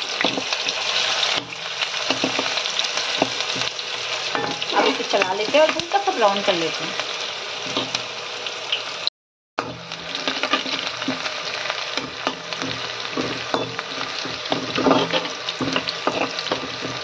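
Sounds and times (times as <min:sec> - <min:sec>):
food sizzling in hot oil: 0:00.0 - 0:17.0
steel spatula scraping a pan: 0:00.2 - 0:05.9, 0:07.6 - 0:08.0, 0:09.6 - 0:17.0.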